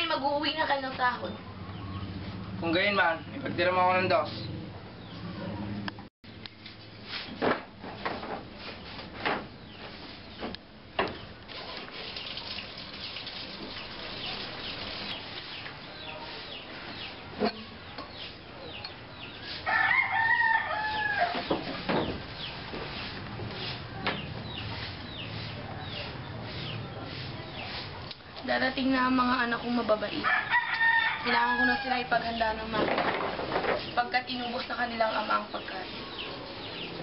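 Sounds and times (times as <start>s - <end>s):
rooster crowing: 19.6s - 21.5s, 30.2s - 32.2s.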